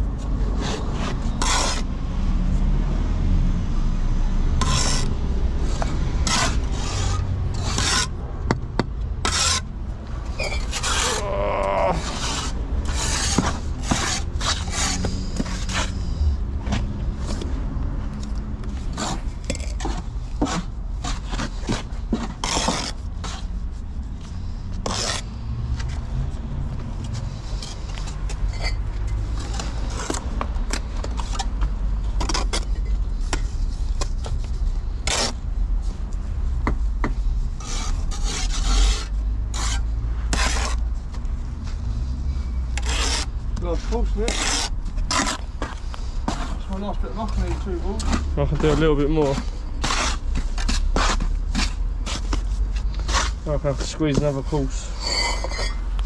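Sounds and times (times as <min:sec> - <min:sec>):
trowel scraping mortar: 0:00.5 - 0:01.9, 0:04.6 - 0:08.2, 0:09.2 - 0:09.7, 0:10.3 - 0:16.2, 0:18.8 - 0:23.6, 0:24.8 - 0:26.0, 0:27.4 - 0:35.4, 0:37.6 - 0:40.9, 0:42.8 - 0:56.0.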